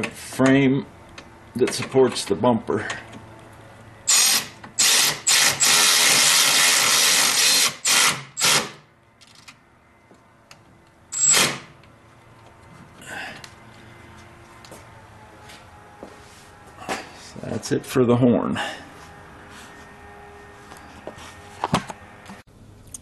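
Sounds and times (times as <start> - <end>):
electric ratchet running: 4.1 - 8.8, 11.1 - 11.7.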